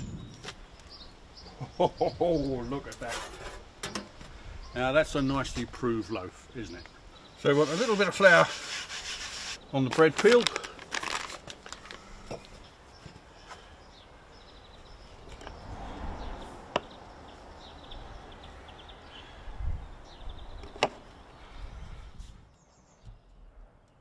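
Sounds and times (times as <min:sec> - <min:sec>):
low wind rumble: 0:00.0 - 0:02.9, 0:14.2 - 0:22.5
birds chirping: 0:00.0 - 0:24.0
dough handled on wooden peel: 0:07.5 - 0:09.6.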